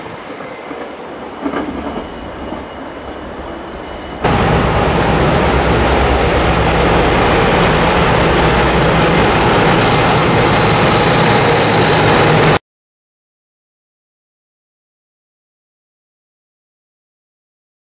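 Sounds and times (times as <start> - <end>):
diesel locomotive passing: 0.0 - 12.6
high engine whine: 0.0 - 12.6.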